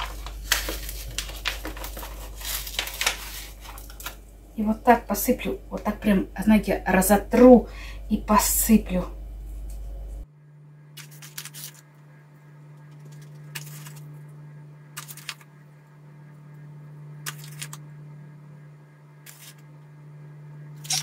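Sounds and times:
crackly rattles of dried herbs: 0:00.0 - 0:04.2, 0:12.8 - 0:14.1, 0:15.0 - 0:15.5, 0:17.2 - 0:17.8
low steady hum: 0:00.0 - 0:21.0.

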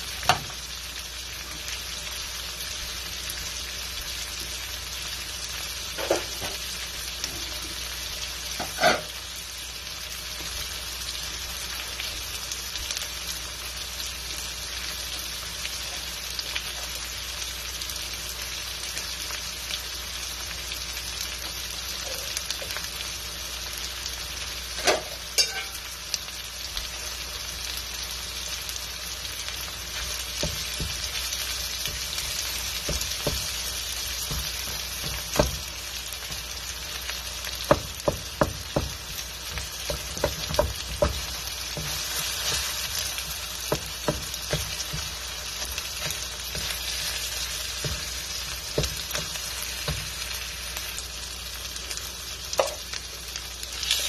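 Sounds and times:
meat and onions sizzling in a wok: 0:00.0 - 0:54.0
wooden spatula scraping a wok: 0:08.6 - 0:09.2.

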